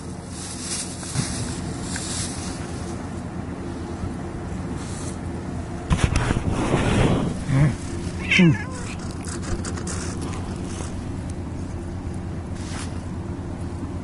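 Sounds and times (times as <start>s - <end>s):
cat meowing: 8.2s - 9.1s.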